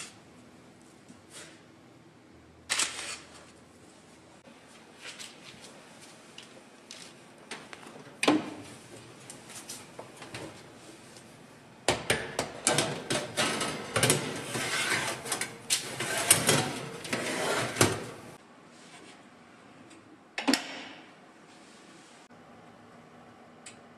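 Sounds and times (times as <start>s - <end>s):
baking tray scraping on rack: 12.7s - 18.4s.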